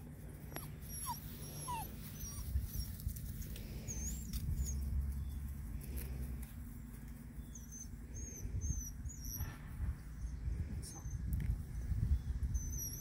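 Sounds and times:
puppies whimpering: 0:00.4 - 0:05.3, 0:07.4 - 0:09.6, 0:12.5 - 0:13.0.

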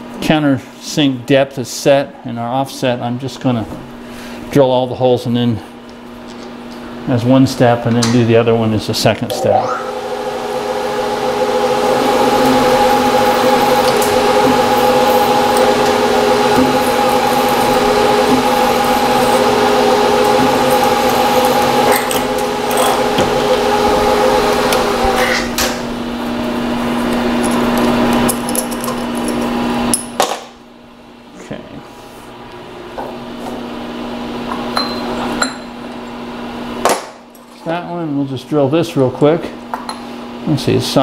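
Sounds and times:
milling machine spindle whine: 0:09.3 - 0:28.5.

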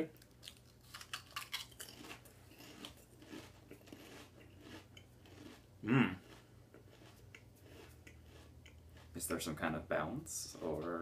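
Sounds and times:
chips crunching while chewed: 0:00.2 - 0:09.5
person humming: 0:05.8 - 0:06.2.

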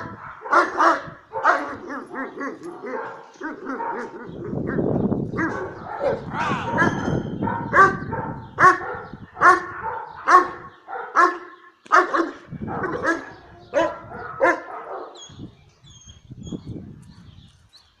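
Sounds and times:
dog barking: 0:00.0 - 0:15.3.

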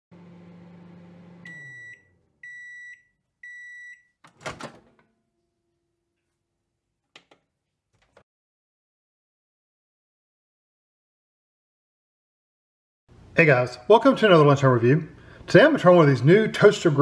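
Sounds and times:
microwave oven humming: 0:00.1 - 0:06.0.

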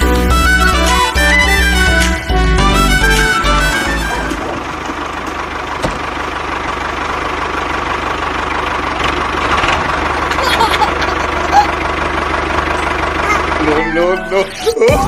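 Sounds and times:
music: 0:00.0 - 0:04.4, 0:13.6 - 0:15.0
small engine knocking: 0:04.6 - 0:14.2.

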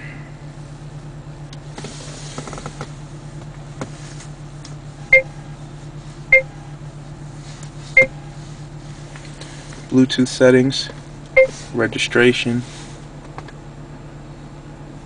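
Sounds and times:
steady low hum: 0:00.0 - 0:15.0
short electronic key beeps: 0:11.4 - 0:11.6.

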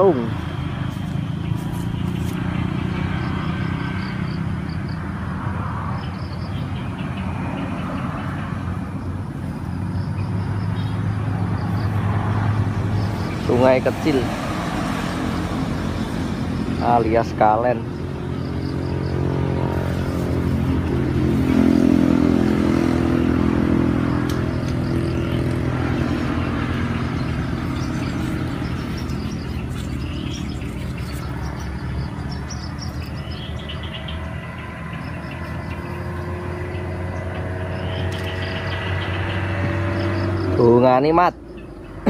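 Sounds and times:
motor engine running: 0:18.3 - 0:39.8.

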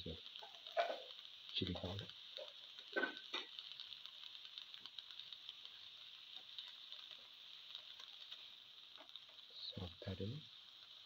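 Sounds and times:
spatula stirring crackles: 0:00.0 - 0:11.0
vegetables sizzling in oil: 0:00.0 - 0:11.0.

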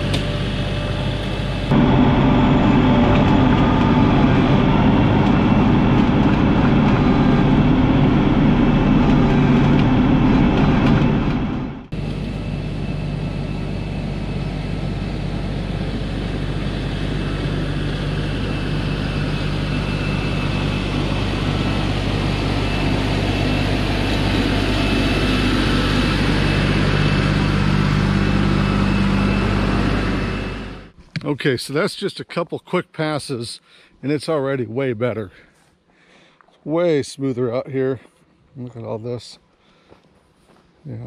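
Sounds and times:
tractor diesel engine under load: 0:00.0 - 0:31.0.

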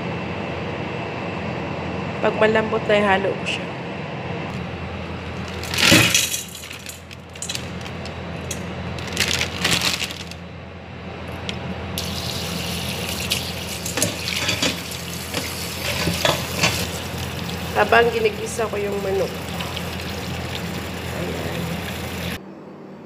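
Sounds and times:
steady low hum: 0:00.0 - 0:23.0
handling clatters and rustles: 0:05.3 - 0:10.4
tap water gushing into steel bowl: 0:12.0 - 0:22.4.

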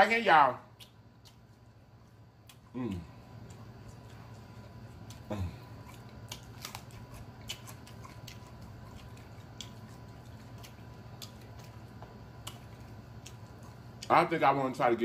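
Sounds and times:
mouth clicks and wet chewing: 0:05.0 - 0:11.8.

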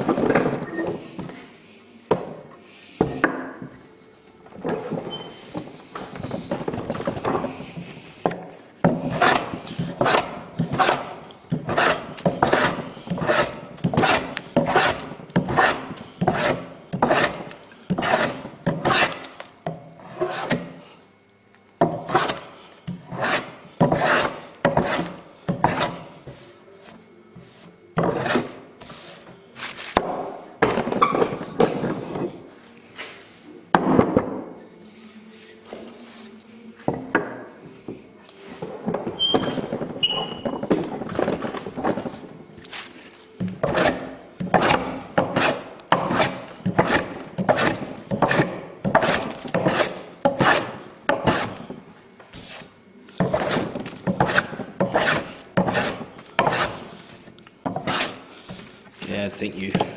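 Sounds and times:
hand plane scraping wood: 0:08.3 - 0:19.3, 0:20.0 - 0:20.8, 0:21.9 - 0:29.9, 0:43.6 - 0:51.7, 0:52.4 - 0:59.0.

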